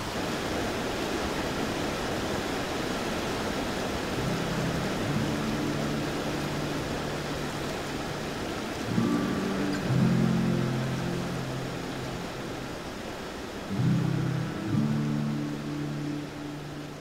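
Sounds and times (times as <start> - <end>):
creek rushing over rocks: 0.0 - 17.0
soft music with low held notes: 4.0 - 17.0.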